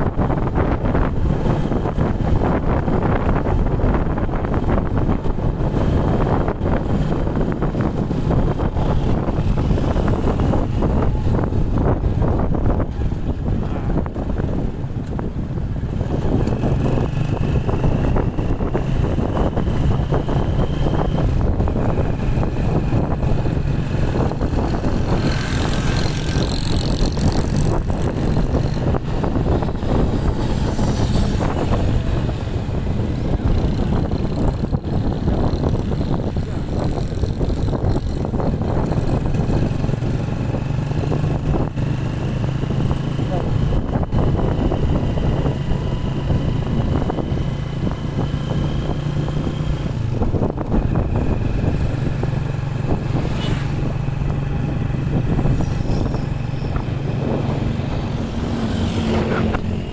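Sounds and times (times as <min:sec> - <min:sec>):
vehicle engine droning: 0:00.0 - 0:59.9
wind rushing over microphone: 0:00.0 - 0:59.9
faint engine whine: 0:52.8 - 0:59.9.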